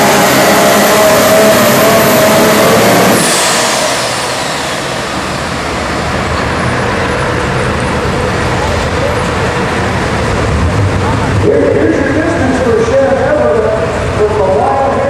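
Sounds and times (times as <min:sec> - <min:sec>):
turbo whine winding down: 0:00.0 - 0:08.4
diesel engine at full throttle: 0:00.0 - 0:15.0.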